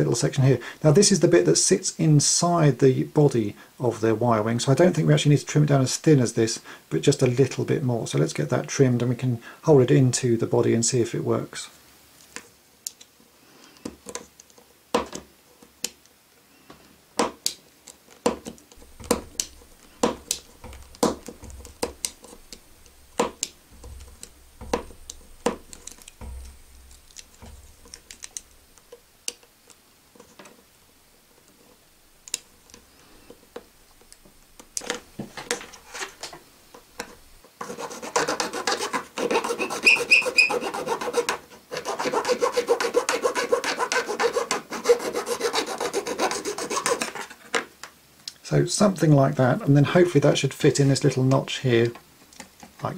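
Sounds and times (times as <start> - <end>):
blade scraping plastic: 37.0 - 47.5.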